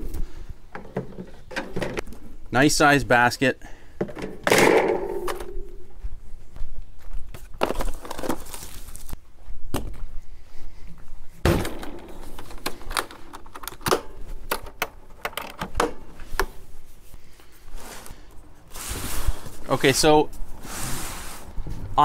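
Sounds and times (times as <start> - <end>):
latches clicking and knocking: 11.7 - 16.5.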